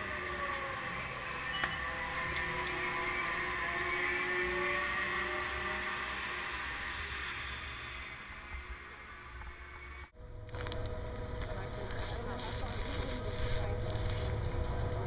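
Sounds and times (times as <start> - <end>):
machinery humming: 0.0 - 15.0
skis sliding on snow: 11.4 - 15.0.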